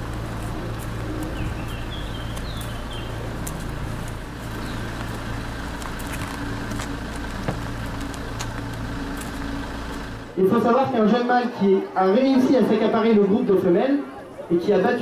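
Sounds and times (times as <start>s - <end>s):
car engine idling: 0.0s - 10.6s
small bird chirping: 0.6s - 3.8s, 4.4s - 5.2s.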